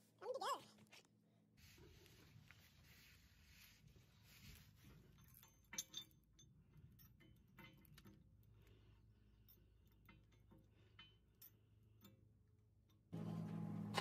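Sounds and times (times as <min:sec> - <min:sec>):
metal clinks of hand tools: 0:05.0 - 0:08.2.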